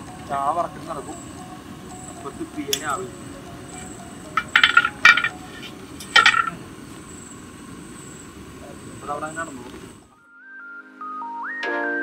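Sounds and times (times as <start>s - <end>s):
metal pan clanking: 3.8s - 6.6s.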